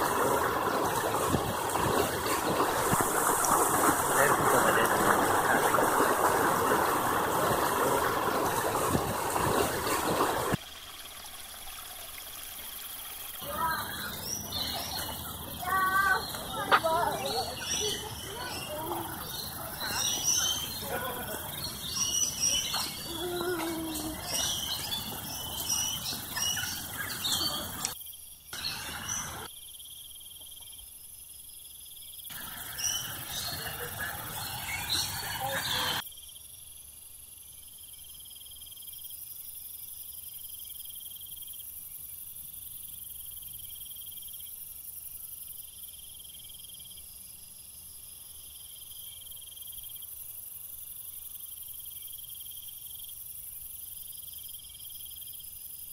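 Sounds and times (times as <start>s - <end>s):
insects chirring: 0.0s - 55.9s
birds chirping and calling: 13.4s - 28.0s, 32.3s - 36.0s.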